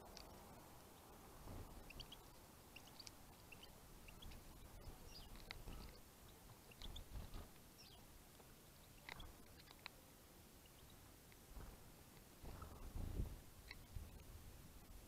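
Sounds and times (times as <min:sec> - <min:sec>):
finches chirping: 0:00.0 - 0:09.9, 0:10.6 - 0:11.0, 0:13.6 - 0:14.3
birds pecking seed: 0:00.0 - 0:15.0.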